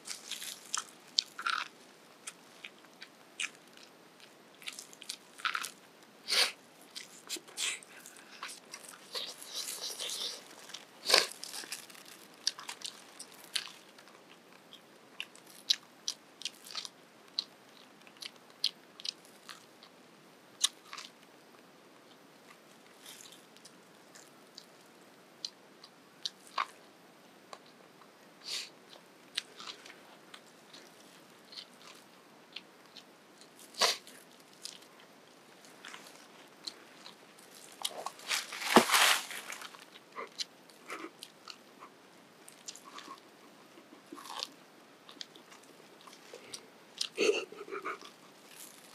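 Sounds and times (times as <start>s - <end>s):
corn husk crackling: 0.0s - 14.3s, 35.6s - 40.3s
biting and chewing corn: 0.0s - 20.0s, 20.6s - 48.9s.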